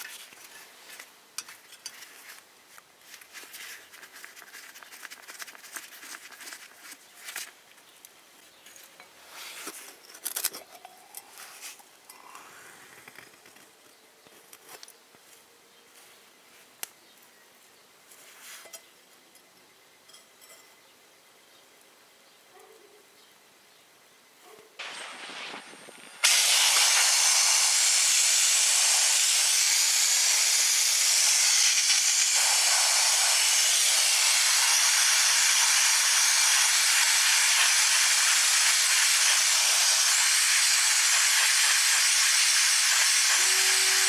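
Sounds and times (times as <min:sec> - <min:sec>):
metal clicks and scrapes: 0:08.9 - 0:11.9.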